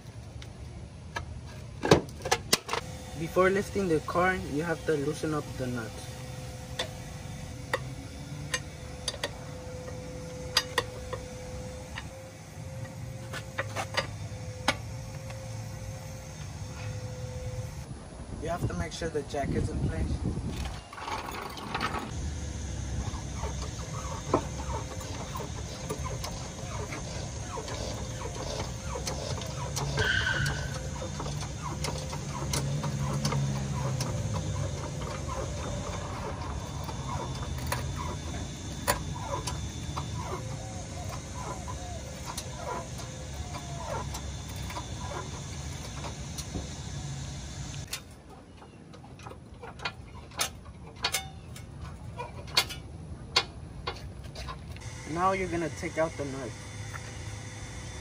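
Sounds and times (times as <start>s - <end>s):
floor jack clicking and squeaking: 23.4s - 46.6s.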